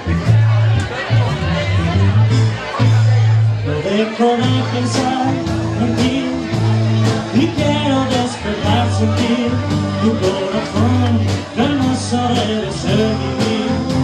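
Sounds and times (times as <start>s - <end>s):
rock and roll band playing: 0.0s - 14.0s
person singing: 3.6s - 14.0s.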